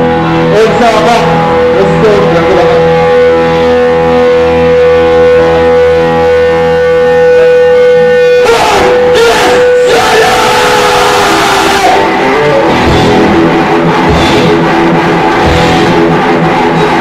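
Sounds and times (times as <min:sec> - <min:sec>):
heavy band playing live: 0:00.0 - 0:17.0
ringing held guitar tone: 0:12.0 - 0:17.0.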